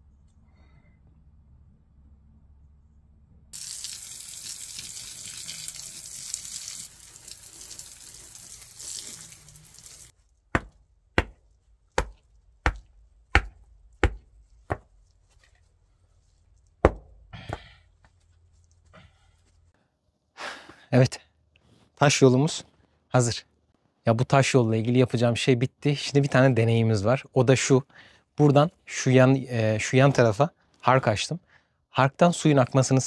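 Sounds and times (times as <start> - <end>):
sharp knocks: 10.5 - 14.9, 16.8 - 17.7.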